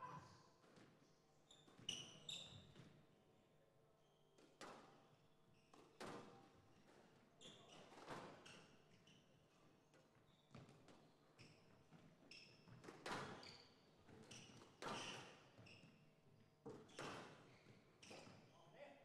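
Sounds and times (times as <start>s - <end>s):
shoes squeaking on court: 1.5s - 3.0s, 16.8s - 18.6s.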